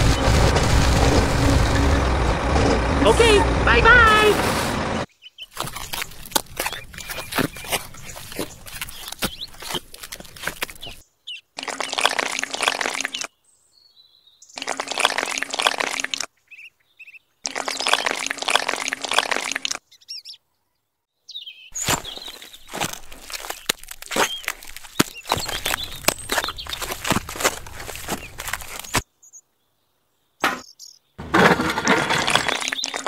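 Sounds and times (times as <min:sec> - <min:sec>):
birds chirping: 0:04.8 - 0:31.2, 0:32.0 - 0:33.0
cement slurry pouring: 0:05.6 - 0:11.0, 0:11.6 - 0:13.3, 0:14.6 - 0:16.3, 0:17.5 - 0:19.8, 0:22.7 - 0:29.0, 0:31.2 - 0:33.0
tool scraping and tapping mortar: 0:31.2 - 0:33.0.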